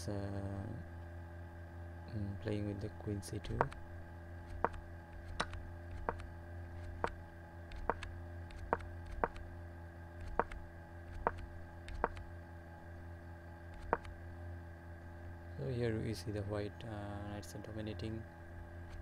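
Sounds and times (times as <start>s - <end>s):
low electrical hum: 0.0s - 19.0s
sharp computer clicks: 3.5s - 3.8s, 4.5s - 6.3s, 7.0s - 9.4s, 10.2s - 12.3s, 13.7s - 14.2s.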